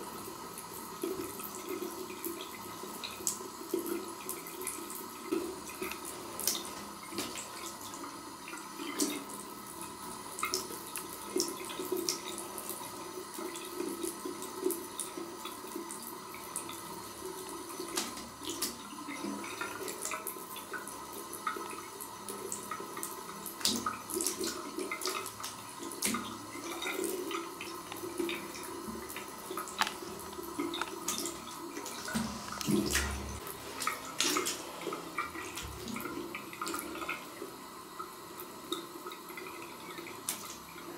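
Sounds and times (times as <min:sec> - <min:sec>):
water stream running into bowl: 0:00.0 - 0:40.9
small splashes and clicks: 0:17.8 - 0:18.8, 0:23.5 - 0:27.2, 0:29.0 - 0:34.6, 0:40.0 - 0:40.6.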